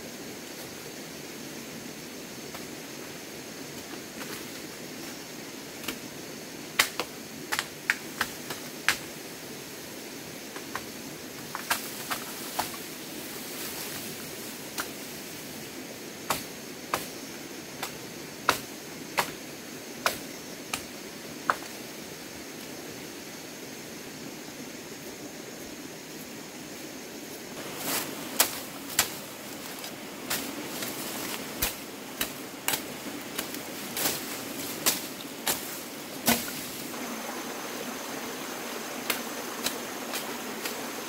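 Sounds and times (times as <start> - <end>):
blade chopping into wood: 34.8 - 36.6.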